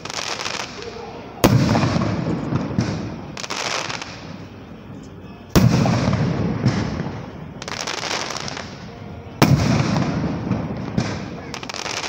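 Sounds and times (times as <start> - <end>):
firework bang: 0.0 - 4.4, 5.5 - 12.0
rumbling echo: 0.7 - 4.9, 5.6 - 7.6, 8.5 - 11.8.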